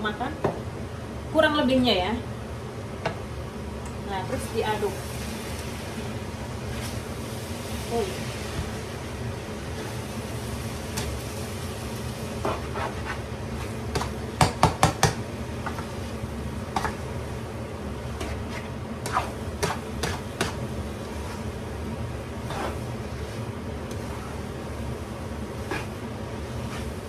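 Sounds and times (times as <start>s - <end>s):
utensil scraping and knocking wok: 9.7s - 17.2s, 18.0s - 27.0s.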